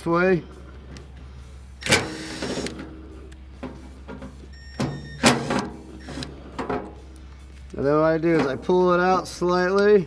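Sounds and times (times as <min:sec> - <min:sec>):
cordless driver spinning: 0:01.8 - 0:02.8.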